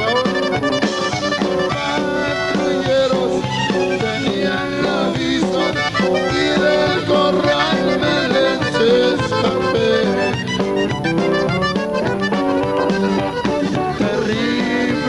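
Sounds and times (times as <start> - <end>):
man singing into a microphone: 0.0 - 10.4, 13.8 - 15.0
live band with accordion: 0.0 - 15.0.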